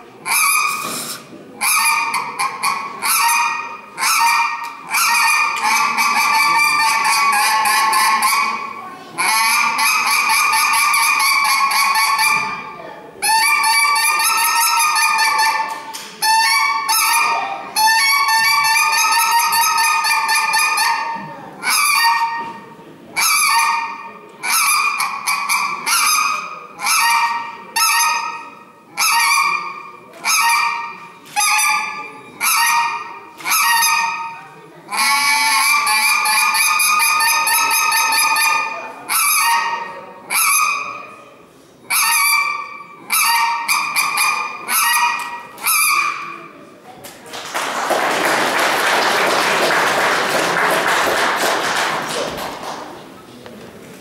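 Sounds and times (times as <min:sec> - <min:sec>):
goose call honking: 0:00.3 - 0:12.6, 0:34.9 - 0:40.8, 0:41.9 - 0:46.3.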